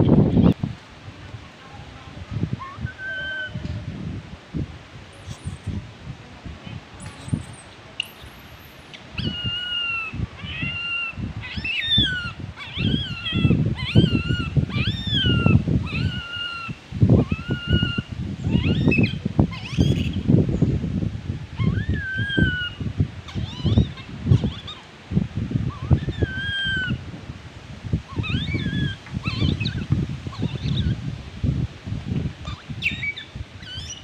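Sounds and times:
baby monkey crying in squeals: 0:09.2 - 0:20.2, 0:21.6 - 0:24.9, 0:25.7 - 0:27.0, 0:28.1 - 0:31.0, 0:32.4 - 0:34.0.

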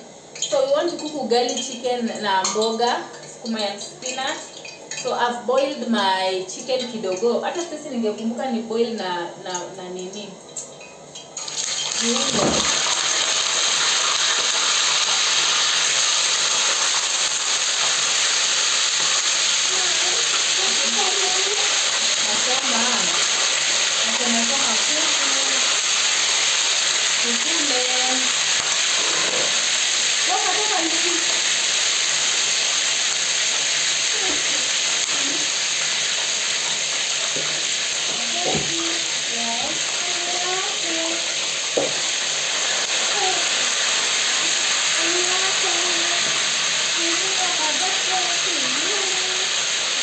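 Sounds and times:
chicken cooking in a pot: 0:10.4 - 0:50.0
steady hiss: 0:11.4 - 0:50.0.

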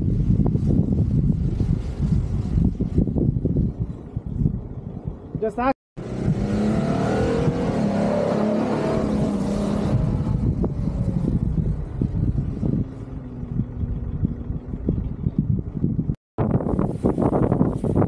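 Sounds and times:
off-road vehicle engine revving: 0:06.0 - 0:16.0.

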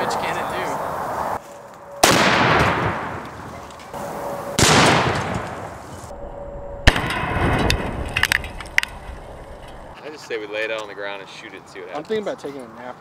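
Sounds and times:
rifle shots echoing: 0:02.0 - 0:03.5, 0:04.6 - 0:05.8, 0:06.8 - 0:08.9.

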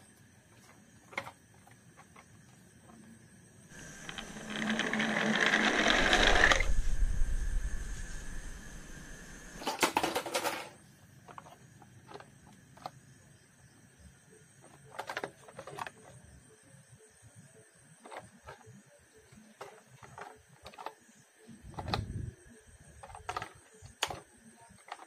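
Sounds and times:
toy gear mechanism whirring: 0:03.7 - 0:07.1
plastic clicks and knocks: 0:23.0 - 0:25.0.

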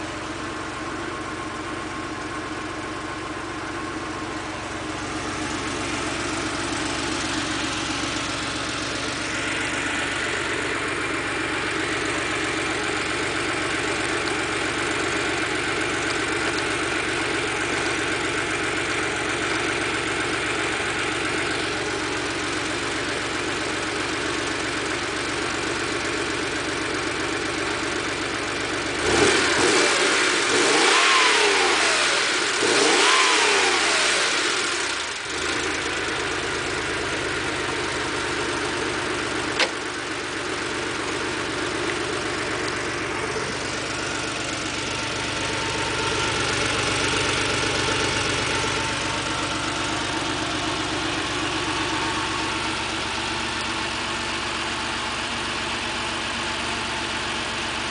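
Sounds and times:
car engine revving and idling: 0:00.0 - 0:57.9
sharp click: 0:39.6 - 0:39.8.

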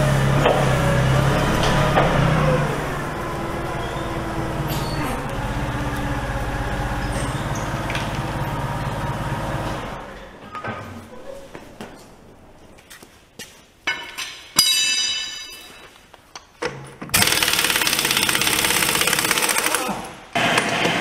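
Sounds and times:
forklift engine running: 0:00.0 - 0:10.5, 0:17.1 - 0:19.8.

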